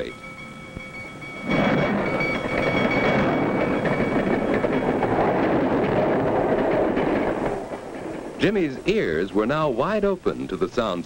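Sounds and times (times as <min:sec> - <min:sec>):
bell ringing: 0:00.0 - 0:06.2
train rumbling and clattering: 0:00.0 - 0:11.0.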